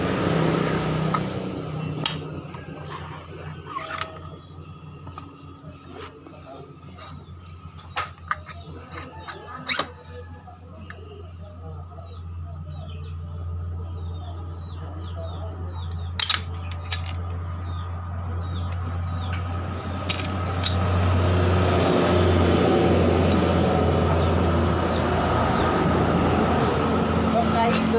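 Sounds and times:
passing motor vehicle: 0:00.0 - 0:27.9
metal parts clinking and clanking: 0:01.8 - 0:04.4, 0:15.9 - 0:17.4, 0:20.0 - 0:20.9.

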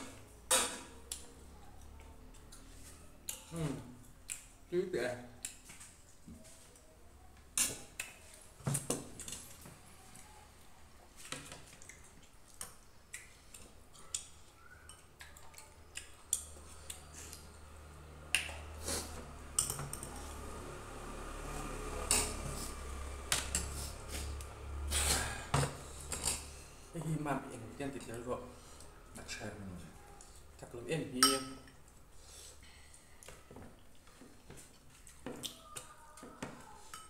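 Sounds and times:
spoon and dishes clinking: 0:19.5 - 0:20.2, 0:31.2 - 0:31.8.

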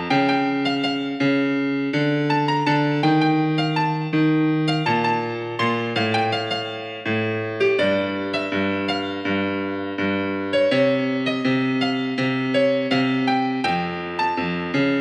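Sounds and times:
piano playing: 0:00.0 - 0:15.0.

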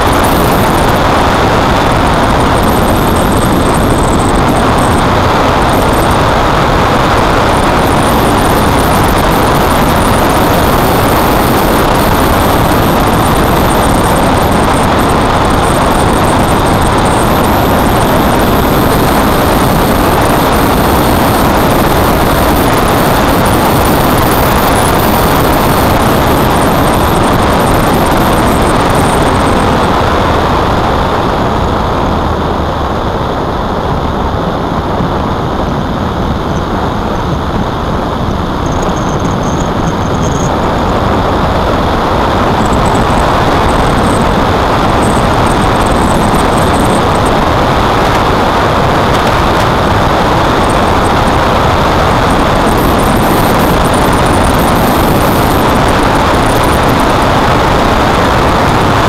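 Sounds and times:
tyre and road noise: 0:00.0 - 0:59.0
wind on microphone: 0:00.0 - 0:59.0.

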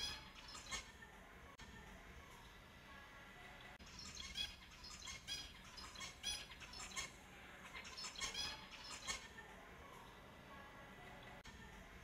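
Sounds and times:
finches chirping: 0:00.0 - 0:00.9, 0:03.6 - 0:09.4.

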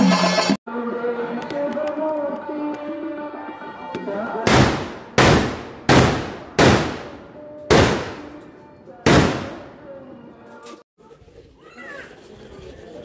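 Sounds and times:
firecrackers banging with echo: 0:04.5 - 0:08.4.

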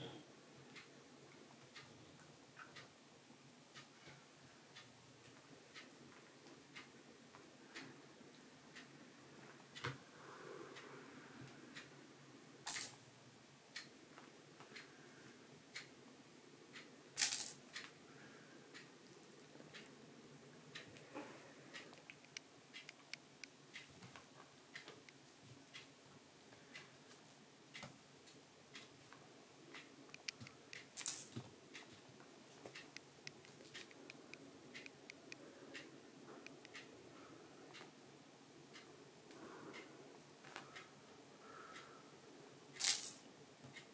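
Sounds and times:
clock ticking: 0:00.0 - 0:10.1, 0:11.5 - 0:12.1, 0:12.7 - 0:14.0, 0:15.7 - 0:16.0, 0:16.6 - 0:18.0, 0:18.7 - 0:43.9.

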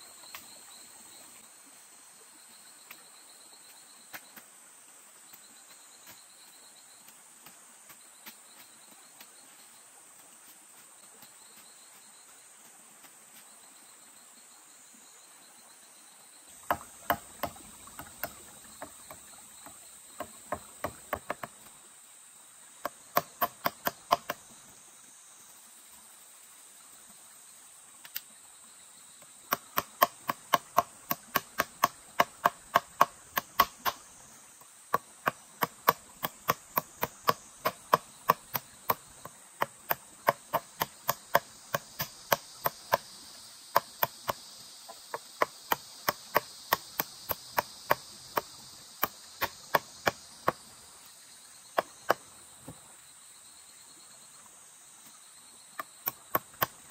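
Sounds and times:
insects droning: 0:00.0 - 0:56.9
sharp chopping strokes: 0:16.6 - 0:21.7, 0:22.8 - 0:24.4, 0:29.5 - 0:34.1, 0:35.0 - 0:44.4, 0:45.1 - 0:50.7, 0:55.8 - 0:56.9.

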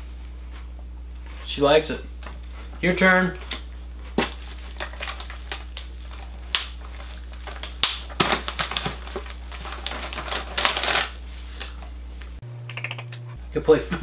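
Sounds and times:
plastic crinkling: 0:04.0 - 0:11.9.

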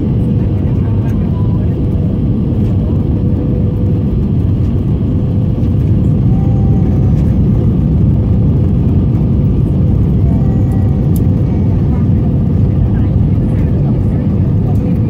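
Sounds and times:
aircraft cabin engine drone: 0:00.0 - 0:15.0.

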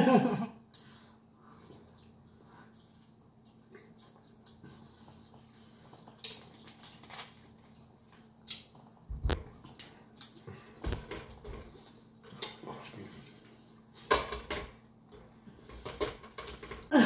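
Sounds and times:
chewing and lip smacks: 0:00.7 - 0:10.9.

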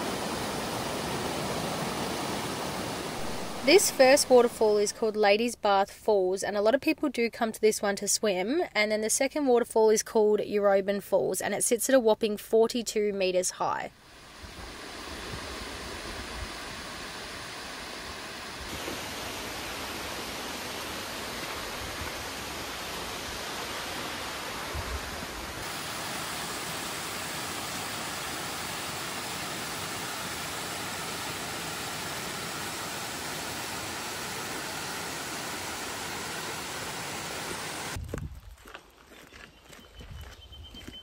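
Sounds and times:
waterfall rushing: 0:00.0 - 0:05.0, 0:14.0 - 0:38.0.

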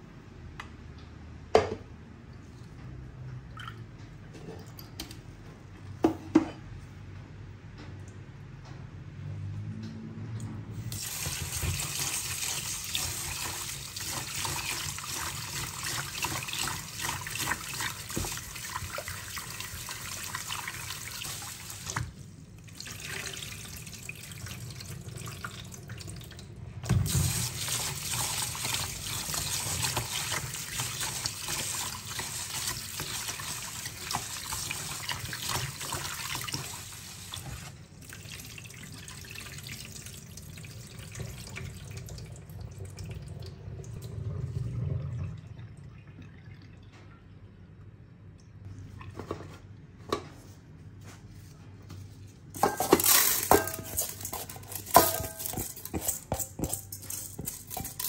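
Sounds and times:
rice being washed by hand: 0:10.8 - 0:26.1, 0:26.9 - 0:42.2.

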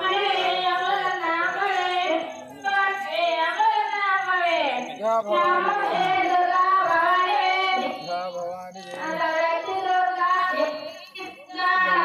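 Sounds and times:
people singing a devotional chant: 0:00.0 - 0:12.0.

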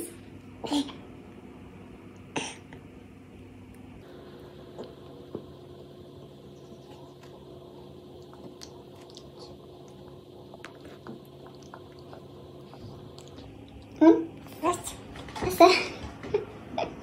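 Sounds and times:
steady low hum: 0:00.0 - 0:17.0
child chewing: 0:06.6 - 0:15.1.

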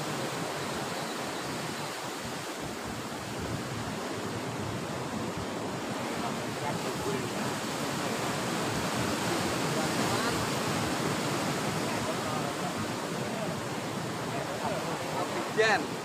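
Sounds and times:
surf washing against rocks: 0:00.0 - 0:16.0.

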